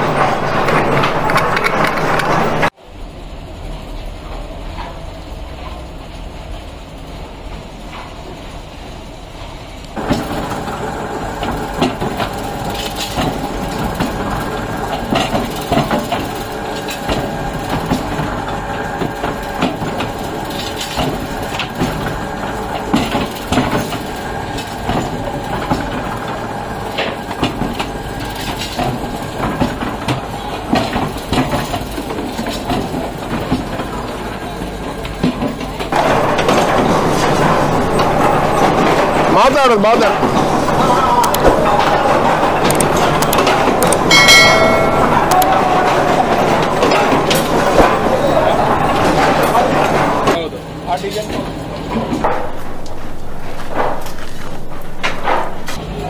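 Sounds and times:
moulds clanking and knocking: 0.0s - 2.8s, 10.0s - 55.8s
machinery drone: 32.0s - 56.0s.

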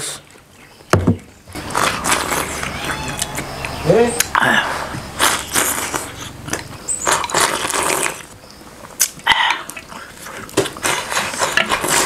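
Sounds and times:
person slurping: 1.6s - 8.4s
chopsticks scraping a bowl: 10.8s - 12.0s.

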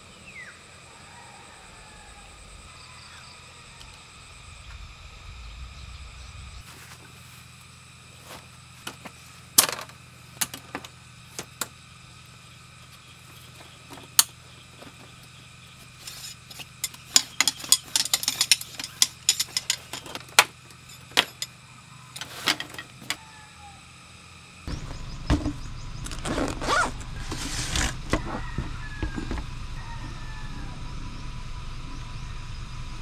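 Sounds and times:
steady low hum: 0.0s - 33.0s
metal poles clicking and rattling: 16.0s - 21.5s, 22.2s - 23.2s.

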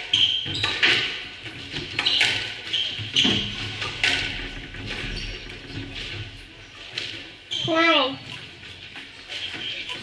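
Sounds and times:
squash ball hitting rackets and walls: 0.0s - 7.8s
shoes squeaking on wooden floor: 0.0s - 10.0s.

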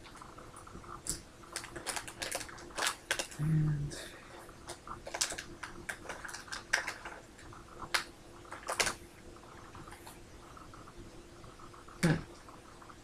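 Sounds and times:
wrapper crinkling and tearing: 1.5s - 3.4s, 5.0s - 7.2s, 7.9s - 9.0s.

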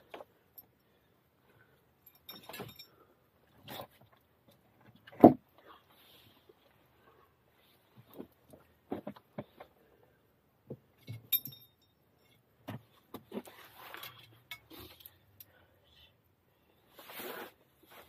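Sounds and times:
ringing metallic clink: 2.0s - 3.0s, 11.0s - 12.3s.

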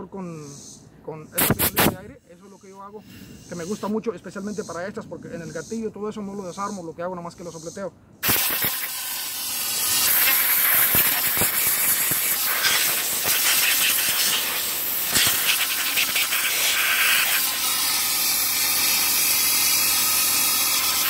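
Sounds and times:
compressed air blow gun hissing: 1.4s - 2.0s, 8.2s - 21.0s.

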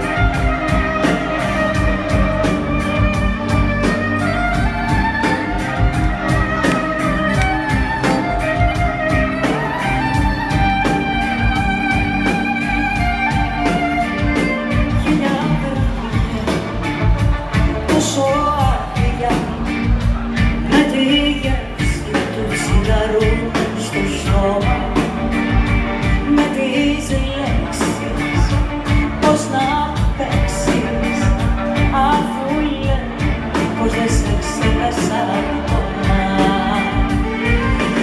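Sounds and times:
bass: 0.0s - 38.0s
drums with steady beat: 0.0s - 38.0s
electric guitar: 0.0s - 38.0s
violin: 0.0s - 38.0s
woman singing into microphone: 14.7s - 16.5s, 17.9s - 20.0s, 20.6s - 25.4s, 26.0s - 38.0s.

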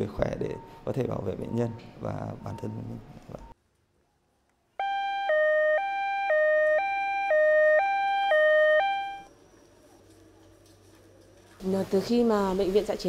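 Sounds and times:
ambulance siren two-tone wail: 4.8s - 9.3s.

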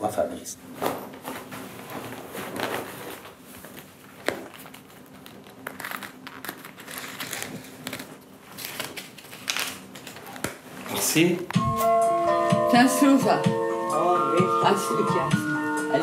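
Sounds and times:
paper rustling and crinkling: 0.8s - 11.2s.

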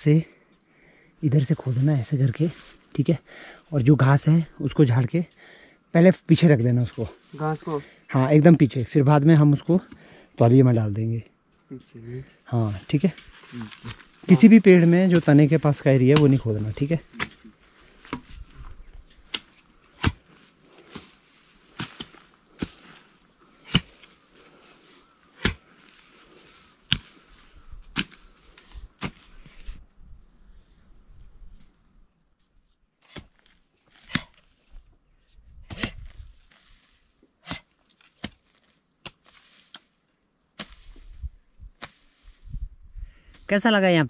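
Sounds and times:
hoes chopping into soil: 12.9s - 24.7s, 25.3s - 29.6s, 33.0s - 34.5s, 35.5s - 36.3s, 37.4s - 42.2s.

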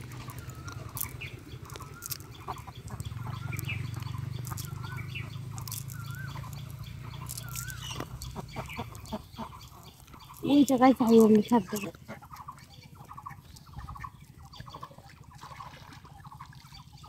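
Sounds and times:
low hum: 0.0s - 17.0s
chicken clucking: 0.2s - 15.4s
net rustling and clicking: 0.3s - 11.9s.

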